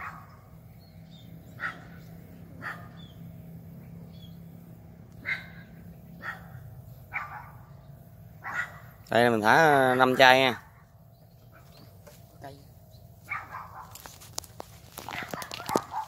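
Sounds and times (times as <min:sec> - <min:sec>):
dog barking: 0:00.0 - 0:00.3, 0:01.6 - 0:02.0, 0:02.6 - 0:03.0, 0:05.2 - 0:07.7, 0:08.4 - 0:09.0, 0:09.6 - 0:10.8, 0:13.2 - 0:14.0, 0:15.1 - 0:16.0
steady low hum: 0:00.0 - 0:09.9.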